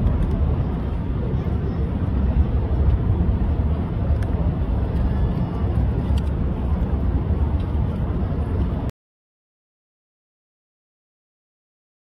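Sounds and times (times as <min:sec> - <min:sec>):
low outdoor rumble: 0:00.0 - 0:08.9.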